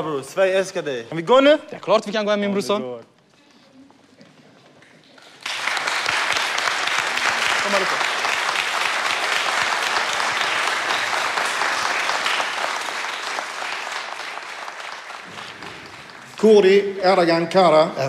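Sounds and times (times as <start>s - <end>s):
people applauding: 5.0s - 17.5s.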